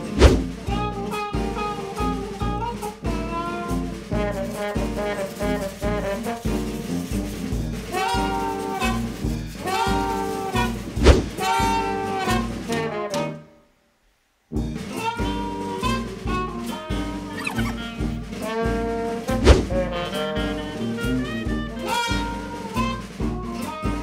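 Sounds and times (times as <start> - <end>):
upbeat jazz music with horns: 0.0 - 13.6, 14.5 - 24.0
sharp hit: 10.6 - 11.6, 19.4 - 19.9.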